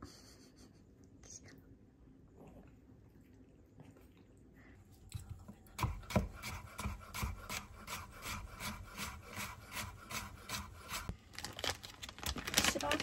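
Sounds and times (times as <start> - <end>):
rhythmic rasping scraping: 5.8 - 11.1.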